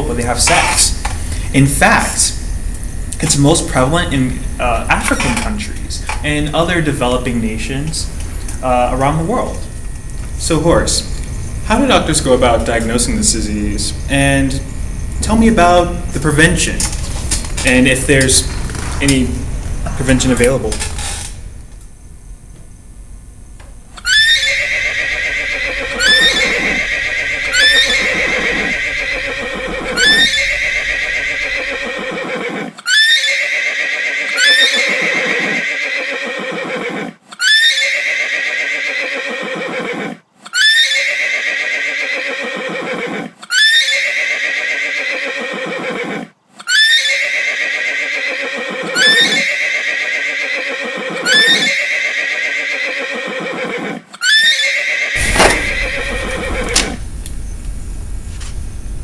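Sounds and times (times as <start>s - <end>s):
horse whinnying: 24.0s - 57.0s.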